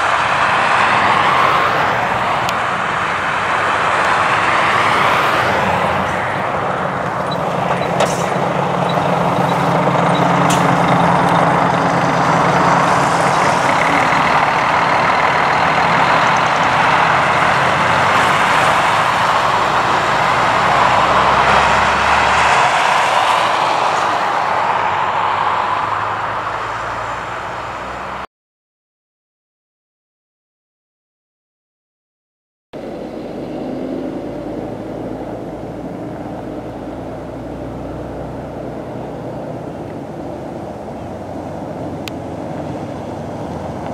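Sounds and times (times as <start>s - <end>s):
coach engine driving past: 0.0s - 28.2s
tyre and road noise: 0.0s - 28.3s, 32.8s - 43.9s.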